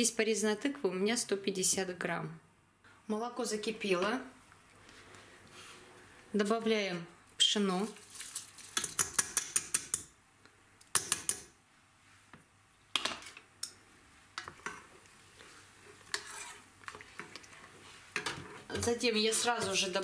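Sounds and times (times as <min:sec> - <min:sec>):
wooden spoon stirring: 0:14.2 - 0:20.0.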